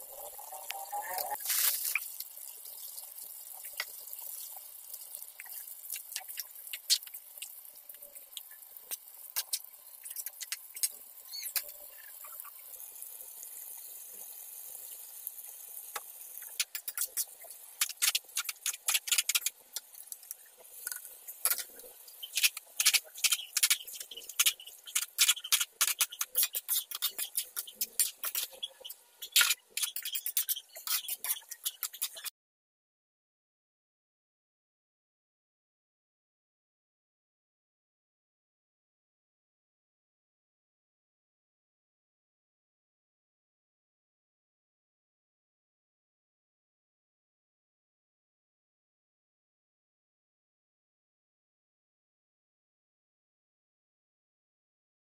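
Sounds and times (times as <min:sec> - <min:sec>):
noodles sizzling in a wok: 0:00.0 - 0:32.3
spatula scraping a wok: 0:20.7 - 0:32.3.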